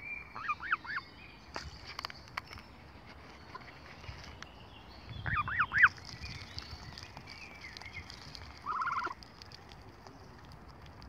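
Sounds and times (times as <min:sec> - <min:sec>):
gosling peeping: 0:00.4 - 0:01.0, 0:05.1 - 0:11.0.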